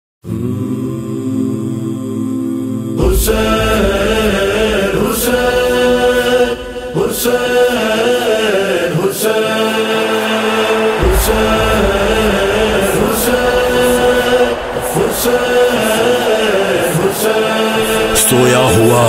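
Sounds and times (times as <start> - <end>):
voices chanting together: 0.2 - 19.0
sharp beat: 10.2 - 19.0.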